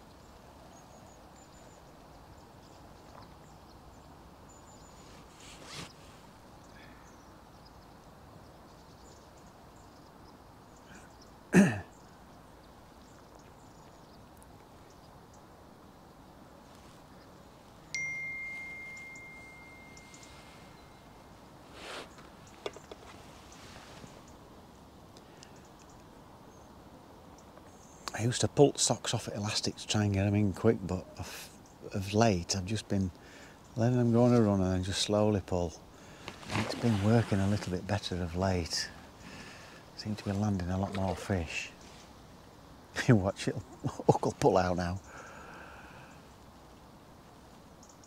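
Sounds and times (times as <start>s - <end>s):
steady wind hiss: 0.0s - 48.0s
bell-like ding: 17.9s - 21.0s
thin high peeps: 17.9s - 22.2s.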